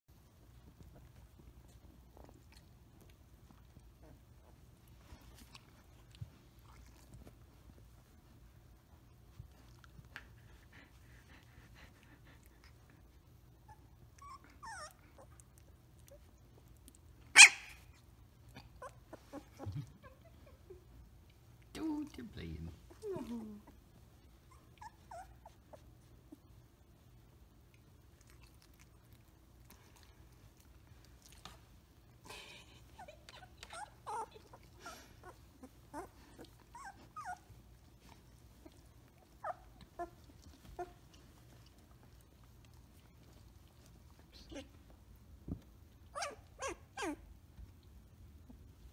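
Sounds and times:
puppy whimpering and squeaking: 13.7s - 15.3s, 24.4s - 25.9s, 33.0s - 37.6s, 38.6s - 41.0s, 46.1s - 47.2s.

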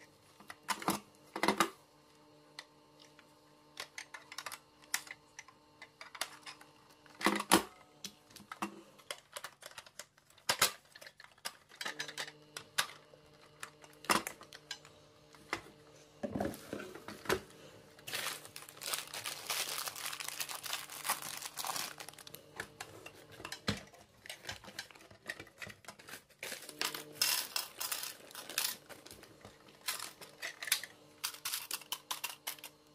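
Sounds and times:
plastic toy parts clicking: 8.5s - 13.0s, 29.8s - 32.7s
plastic wrapping crinkling: 18.0s - 22.6s, 24.2s - 30.7s.

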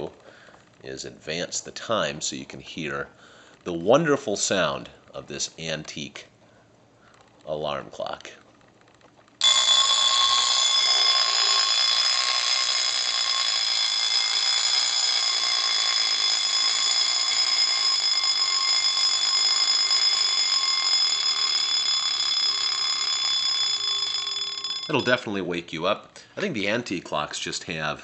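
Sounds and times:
alarm clock bell ringing: 9.4s - 25.4s.

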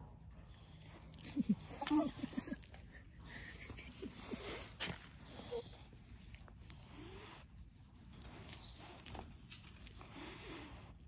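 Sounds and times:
dog whimpering: 0.7s - 2.7s, 4.2s - 5.9s.

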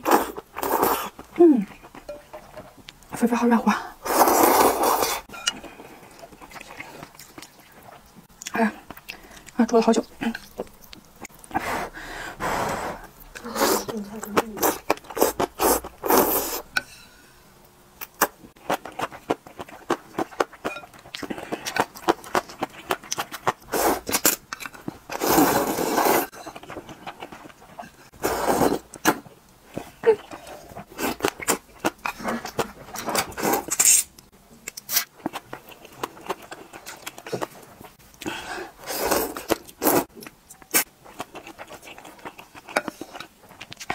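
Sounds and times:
noodles slurping: 4.0s - 5.3s, 25.1s - 26.3s
chewing and lip-smacking: 39.4s - 43.9s.

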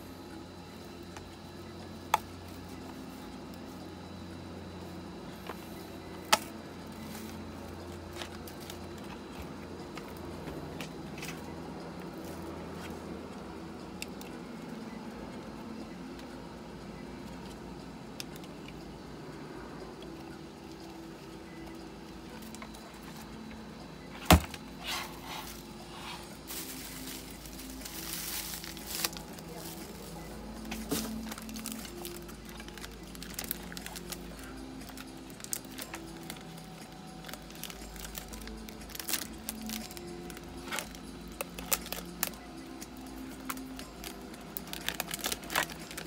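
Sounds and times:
steady low hum: 0.0s - 46.0s
gas mask rubbing and rustling: 24.7s - 29.9s.

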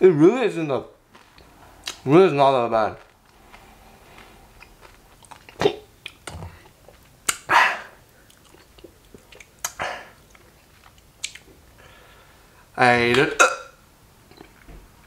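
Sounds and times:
person chewing chip: 2.9s - 11.6s.

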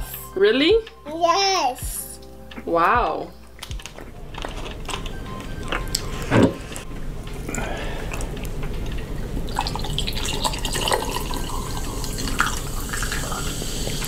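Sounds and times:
drink pouring into a glass: 8.9s - 14.0s.

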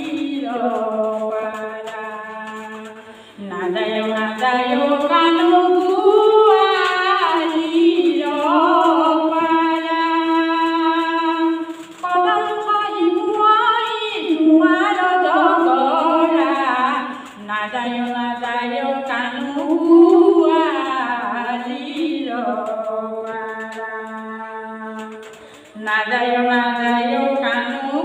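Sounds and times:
woman singing unaccompanied: 0.0s - 28.0s.

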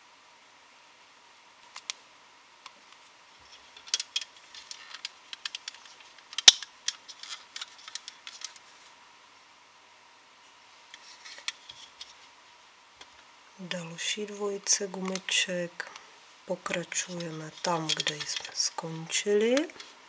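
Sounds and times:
plastic loom pegs clicking and rattling: 16.7s - 18.7s.

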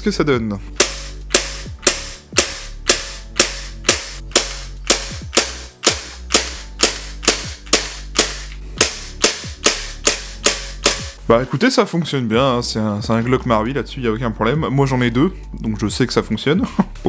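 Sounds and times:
airsoft pistol blowback shots: 0.8s - 11.2s.

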